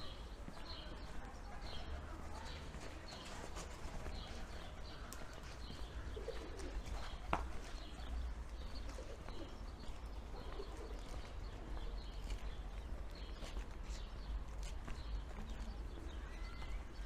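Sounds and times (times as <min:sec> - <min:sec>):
street ambience: 0:00.0 - 0:17.0
pigeons cooing: 0:03.2 - 0:09.6, 0:10.2 - 0:11.9.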